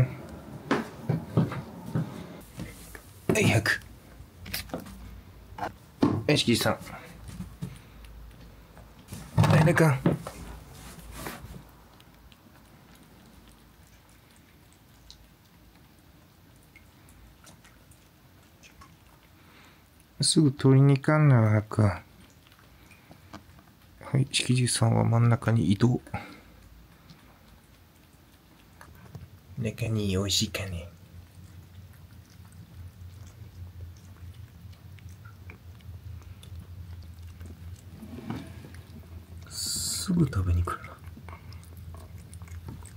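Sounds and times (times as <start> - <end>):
cats chewing: 0.0 - 42.9.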